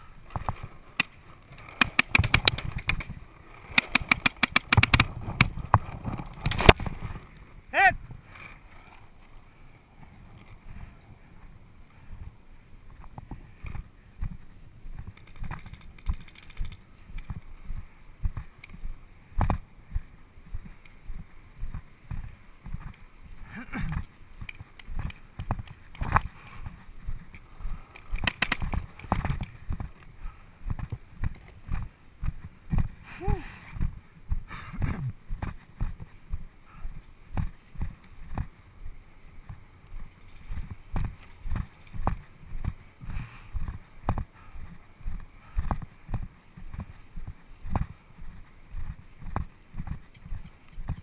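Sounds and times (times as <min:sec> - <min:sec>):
sharp cracks: 0:00.3 - 0:07.0, 0:28.0 - 0:29.5
footsteps and gear knocks: 0:37.3 - 0:51.0.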